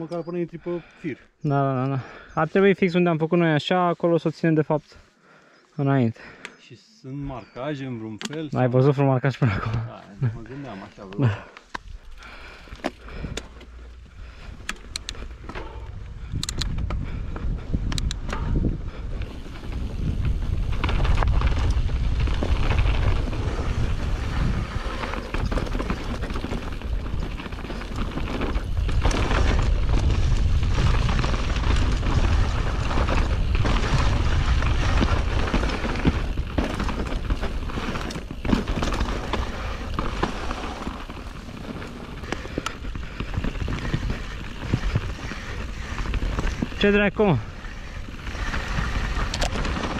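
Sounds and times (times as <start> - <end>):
bike tyres on dirt trail: 8.6 - 49.9
wind buffeting microphone: 14.0 - 49.9
bike knocks and rattles: 25.0 - 46.7.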